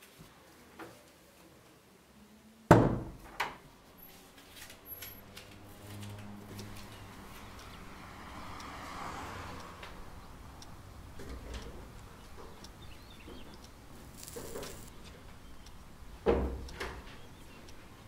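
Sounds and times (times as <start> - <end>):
faint ticks: 9.5 - 15.9.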